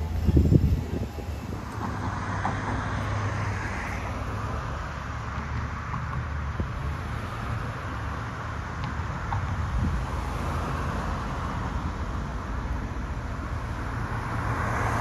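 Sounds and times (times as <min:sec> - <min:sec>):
wind rumbling on microphone: 0:00.0 - 0:04.2, 0:05.5 - 0:12.2
road traffic: 0:00.0 - 0:15.0.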